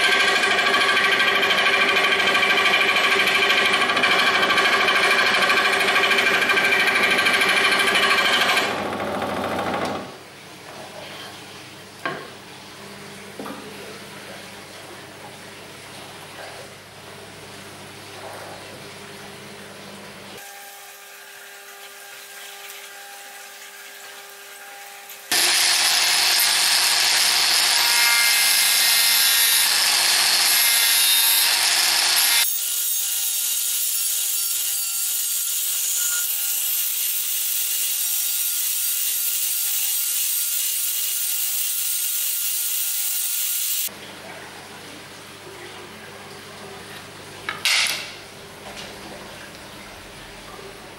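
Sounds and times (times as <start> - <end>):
rotary tool motor whine: 0.0 - 10.1, 24.7 - 27.9, 34.6 - 43.9
rotary tool grinding: 0.0 - 10.2, 25.1 - 43.9.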